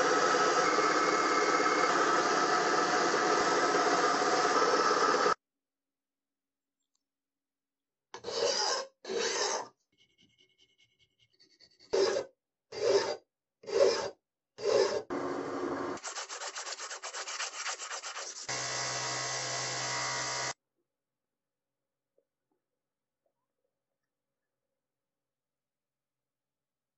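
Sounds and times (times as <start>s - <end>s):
polishing wheel hissing and humming: 0.0s - 5.4s
hand file strokes on steel: 16.0s - 18.6s.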